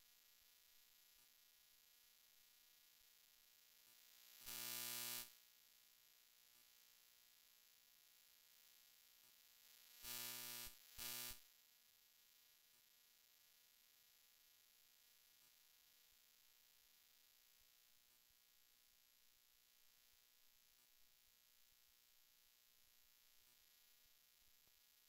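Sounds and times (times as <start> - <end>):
faint electrical hum and hiss: 0.0 - 25.0
short flat buzzing tones: 10.0 - 11.4.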